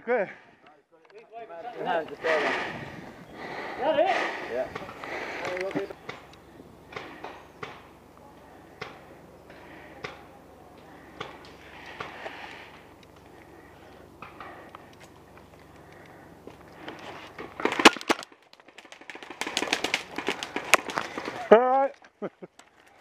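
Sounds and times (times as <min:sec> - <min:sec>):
twigs snapping and clicks: 0:14.2 - 0:21.4
loud sharp cracks: 0:17.5 - 0:21.4.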